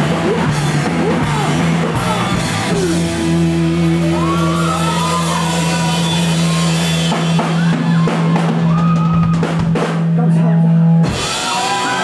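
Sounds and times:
rock band ringing chord: 0.0 - 8.2.

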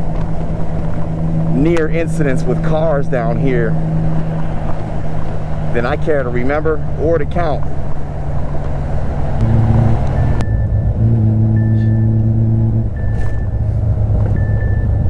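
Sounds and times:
held low tones: 0.0 - 15.0
motorcycle engine and wind rumble: 0.0 - 15.0
short high beeps: 9.4 - 12.2, 13.0 - 13.6.

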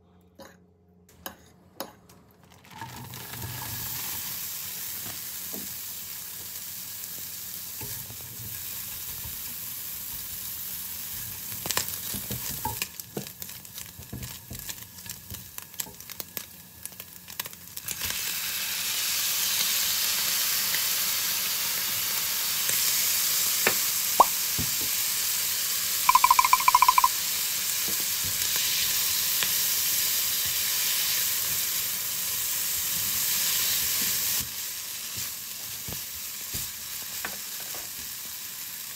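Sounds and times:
fried rice sizzling in a pan: 2.6 - 38.9
pulsing high tone: 26.1 - 27.1.

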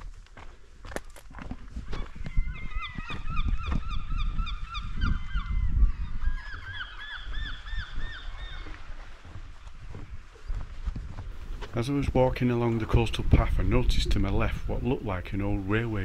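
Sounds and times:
gulls calling: 11.6 - 16.0.

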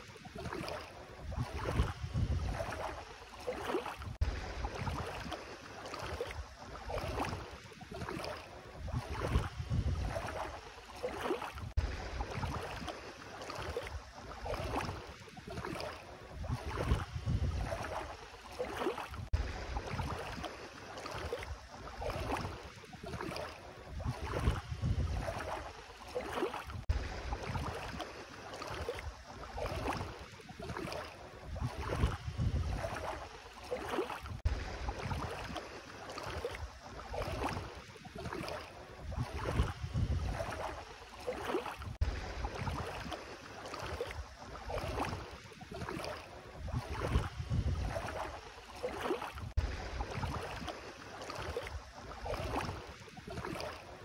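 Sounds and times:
feet sloshing through water: 0.0 - 54.0
wind rumbling on microphone: 0.6 - 3.0, 4.0 - 5.4, 8.1 - 10.6, 11.6 - 12.9, 16.2 - 18.2, 19.1 - 20.4, 23.2 - 25.7, 26.6 - 28.0, 30.8 - 33.3, 34.2 - 35.6, 36.6 - 40.9, 41.8 - 43.1, 45.8 - 48.4, 49.3 - 50.8.

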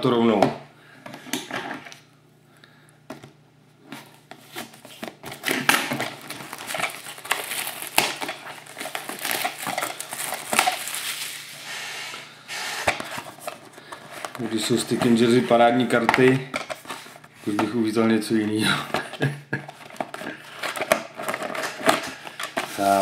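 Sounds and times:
plastic wrap crinkling: 4.0 - 11.8, 19.7 - 23.0.

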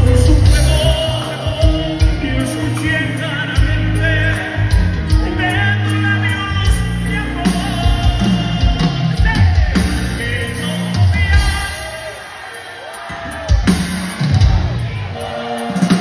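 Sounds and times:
bass line: 0.0 - 11.8
man singing: 0.0 - 12.2.

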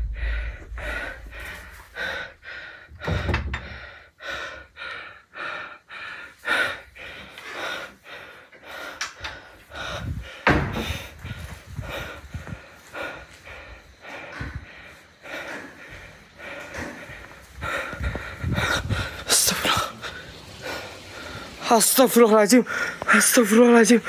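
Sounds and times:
person breathing hard: 0.0 - 21.6, 22.6 - 23.2
heavy thump: 3.0 - 3.8, 10.4 - 11.4.

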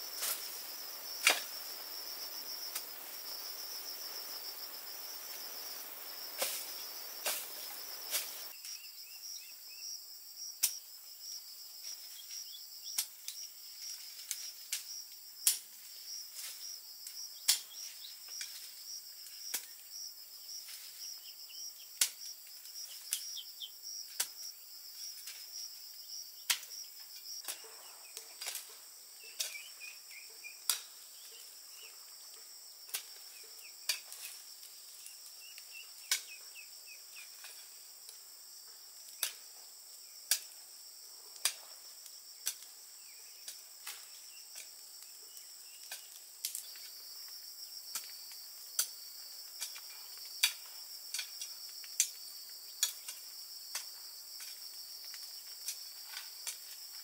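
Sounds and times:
insects trilling: 0.0 - 57.0
hoe chopping into soil: 1.2 - 1.6, 6.4 - 8.5.

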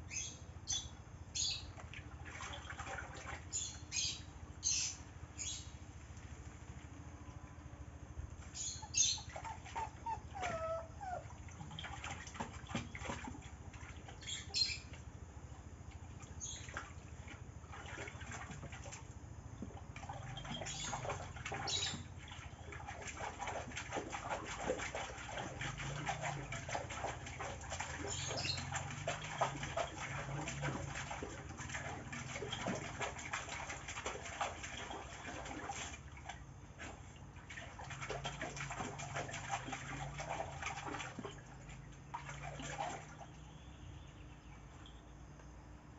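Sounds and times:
dog splashing water: 1.6 - 4.0, 8.4 - 43.7
birds chirping: 8.5 - 11.0, 20.4 - 22.1, 28.0 - 28.8.

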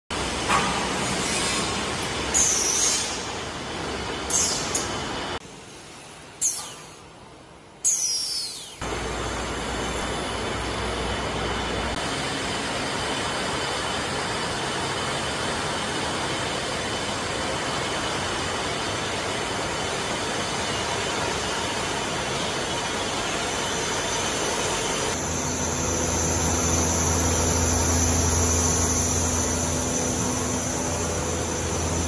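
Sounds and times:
canning line machinery din: 20.8 - 32.0.

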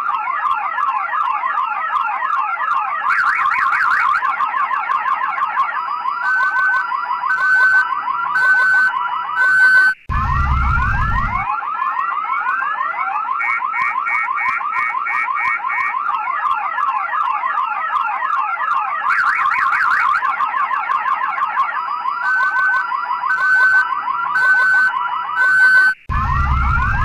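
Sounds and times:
car alarm siren: 0.0 - 27.0
low rumble: 10.1 - 11.4.

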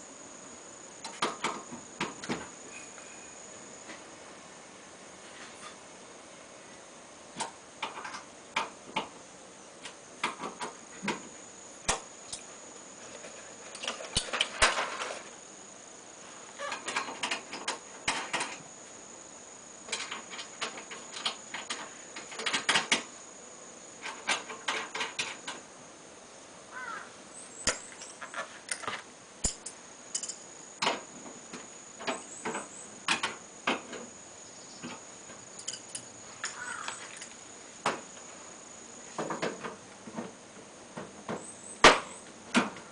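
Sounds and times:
hand tools clicking and clattering: 16.6 - 18.6, 19.9 - 23.1, 24.0 - 25.6, 27.6 - 31.0, 35.6 - 37.4.

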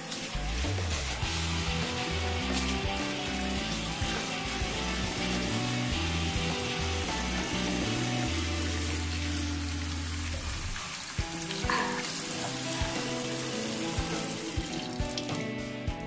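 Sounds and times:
tap running into sink: 10.0 - 16.0.

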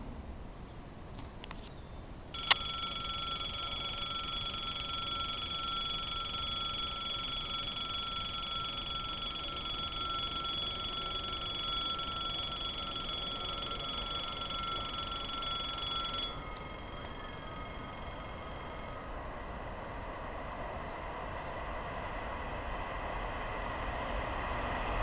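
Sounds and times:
level crossing warning bell: 2.3 - 19.3
bell switch click: 2.4 - 2.8.

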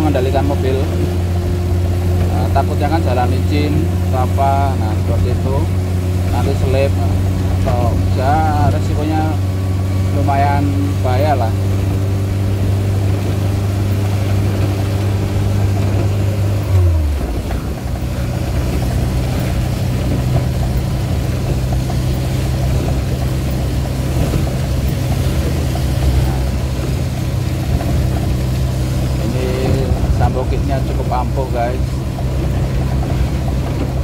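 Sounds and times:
van engine running: 0.0 - 34.0
heavy rain on a van: 11.4 - 34.0.

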